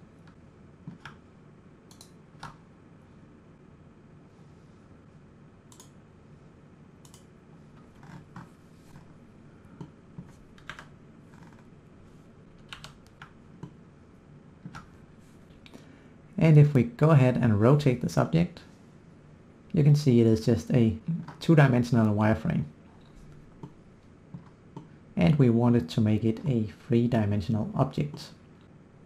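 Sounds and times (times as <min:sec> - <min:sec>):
low steady hiss: 0:00.0 - 0:29.0
computer mouse and keyboard clicks: 0:00.2 - 0:01.2, 0:07.0 - 0:09.1, 0:09.8 - 0:11.7, 0:12.6 - 0:13.8.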